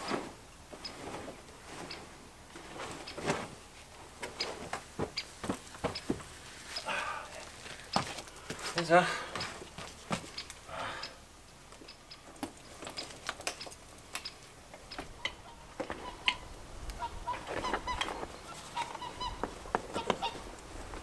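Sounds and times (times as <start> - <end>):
honking animal calls: 15.2 - 20.4.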